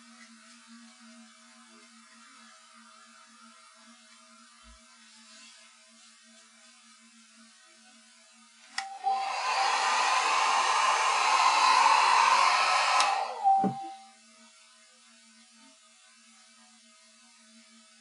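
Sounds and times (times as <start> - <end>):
hair dryer switch click: 8.7 - 9.5, 12.5 - 14.0
hair dryer blowing: 8.8 - 14.1.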